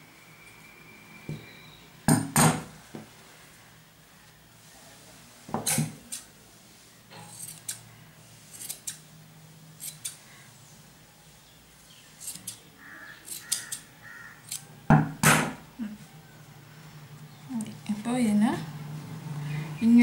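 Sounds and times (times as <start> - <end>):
scissors snipping yarn: 13.3 - 14.6.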